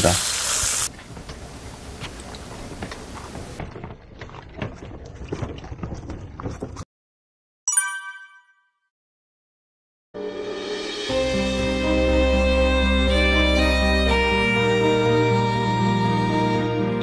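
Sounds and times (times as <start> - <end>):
cart rattling over paving stones: 0.9 - 6.8
short bright ringing tone: 7.7 - 8.9.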